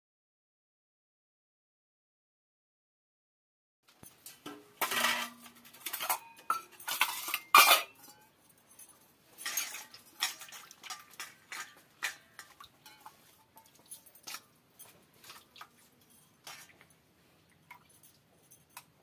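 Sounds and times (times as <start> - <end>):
steel bowls clanking on concrete: 4.3 - 17.0.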